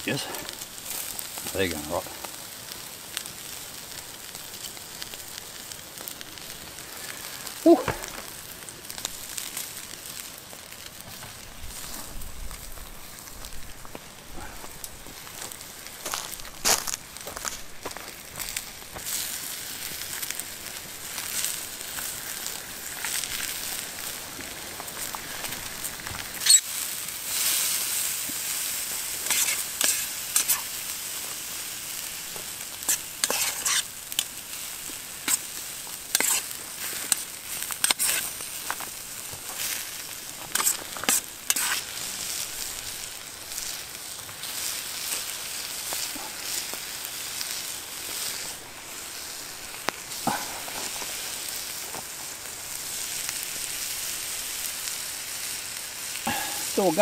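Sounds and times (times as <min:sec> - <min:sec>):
campfire crackling: 0:00.0 - 0:57.0
vegetables sizzling in a frying pan: 0:00.0 - 0:57.0
utensil clicking and scraping pan: 0:29.2 - 0:30.7, 0:32.8 - 0:34.3, 0:35.2 - 0:35.5, 0:36.1 - 0:38.4, 0:40.5 - 0:41.9
sharp pops: 0:36.1 - 0:36.5, 0:40.4 - 0:41.9.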